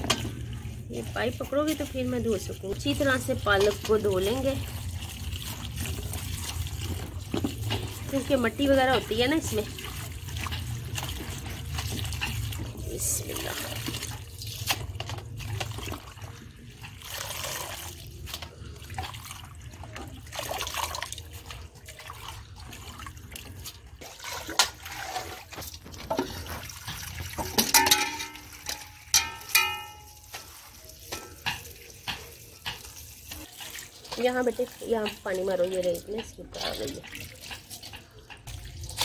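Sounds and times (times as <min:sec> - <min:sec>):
water pouring into steel pot: 0:00.0 - 0:39.0
metallic knocks: 0:27.4 - 0:30.4.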